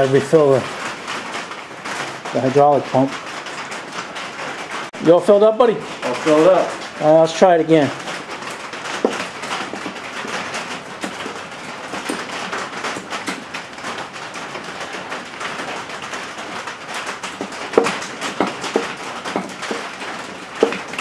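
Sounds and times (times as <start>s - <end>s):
steady hiss: 0.0s - 1.0s.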